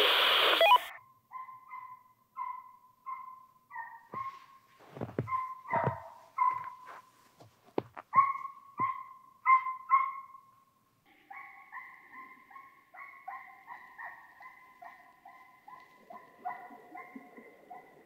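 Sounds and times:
hunting dog baying: 0:05.2 - 0:07.1.

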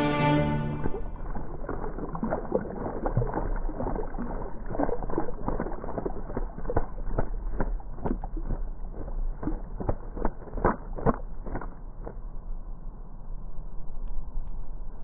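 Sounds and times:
bird splashing in birdbath: 0:00.9 - 0:11.7.

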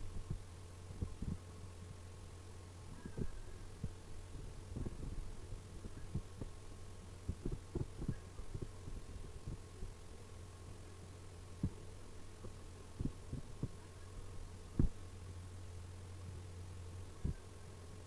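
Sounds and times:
low electrical hum: 0:00.0 - 0:18.0
soft low thumps: 0:14.7 - 0:15.0.

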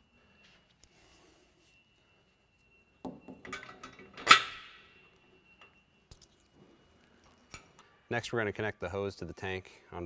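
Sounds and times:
metal hardware clinking: 0:05.6 - 0:06.6.

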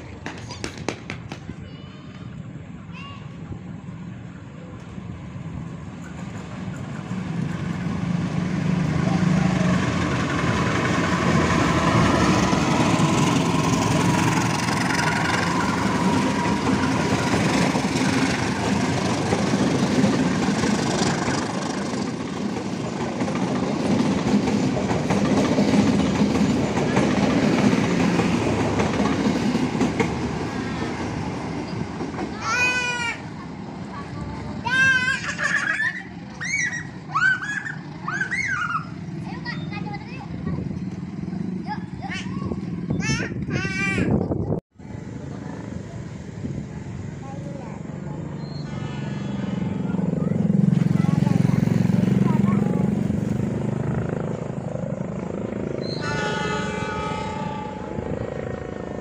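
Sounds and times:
train wheels clattering over rails: 0:00.0 - 0:01.6, 0:05.8 - 0:32.4
diesel locomotive passing: 0:02.2 - 0:59.0.

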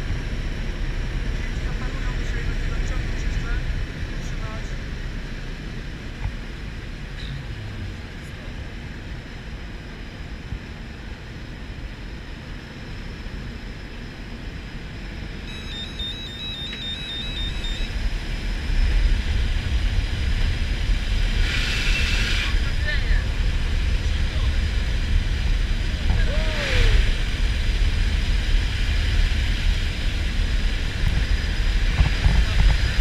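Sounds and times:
plane cabin drone: 0:00.0 - 0:33.0
warbling electronic beeps: 0:15.4 - 0:18.0
rushing wind noise: 0:16.2 - 0:33.0.

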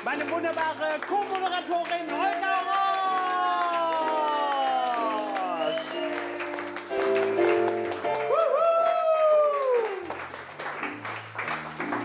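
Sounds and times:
hand-clapping: 0:00.0 - 0:12.0
music with held notes: 0:04.8 - 0:08.5.

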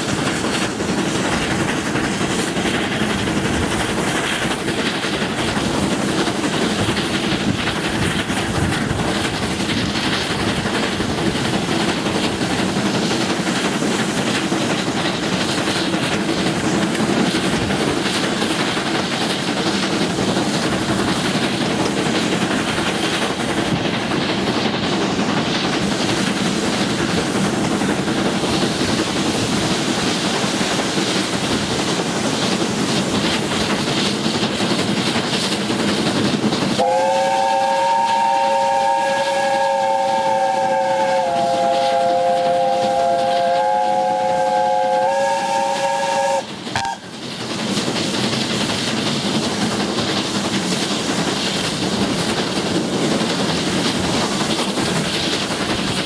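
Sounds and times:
train running noise: 0:00.0 - 0:56.0
steam locomotive chime whistle: 0:36.8 - 0:47.1.

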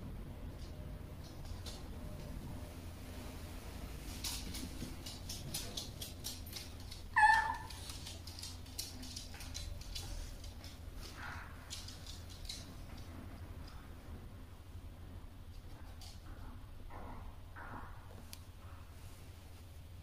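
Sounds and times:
dog claws clicking on wood: 0:04.2 - 0:13.8
dog whining: 0:07.1 - 0:08.1.

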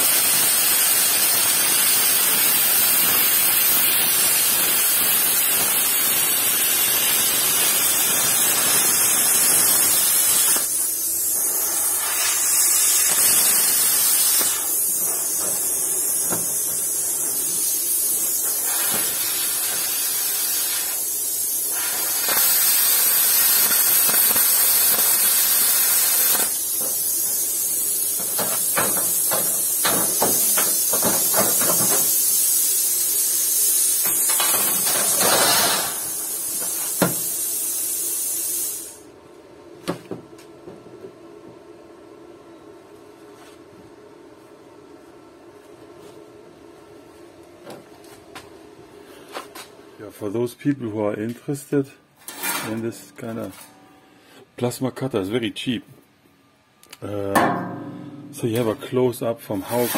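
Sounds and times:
plasma cutter hissing: 0:00.0 - 0:39.1, 0:59.5 - 0:59.9.

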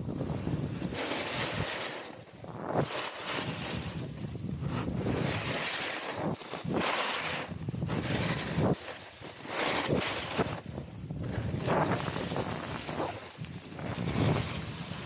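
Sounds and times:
snowboard carving on snow: 0:00.0 - 0:15.0
wind buffeting microphone: 0:02.4 - 0:08.9, 0:09.6 - 0:15.0.

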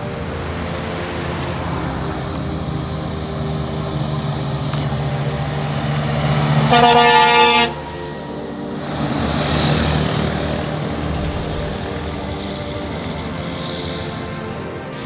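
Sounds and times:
truck diesel engine running: 0:00.0 - 0:15.0
truck passing: 0:00.0 - 0:15.0
truck horn: 0:04.8 - 0:15.0.

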